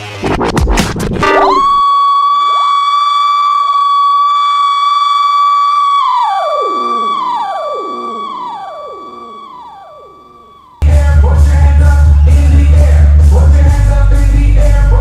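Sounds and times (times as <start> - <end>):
synthesizer high steady tone: 1.2 - 11.2
echoing falling synth swoops: 2.2 - 10.8.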